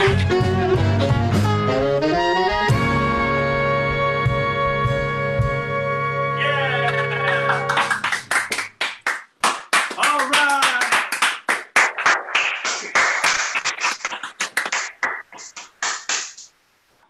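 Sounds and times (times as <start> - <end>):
hand clapping: 6.8 - 16.5.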